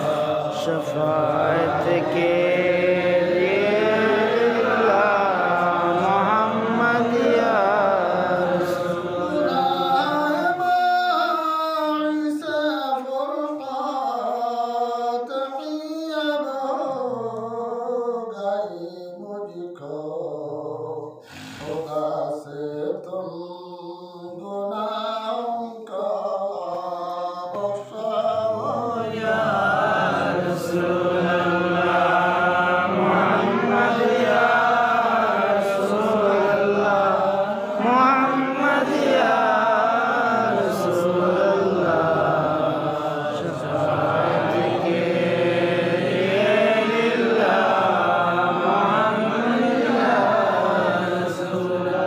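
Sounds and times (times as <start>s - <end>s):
voices chanting melodically: 0.0s - 11.2s, 27.5s - 52.0s.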